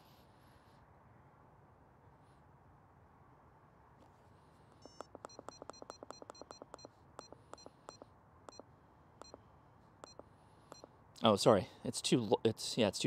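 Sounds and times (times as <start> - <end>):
short electronic beeps: 4.8 - 8.6, 9.2 - 9.4, 10.0 - 10.9.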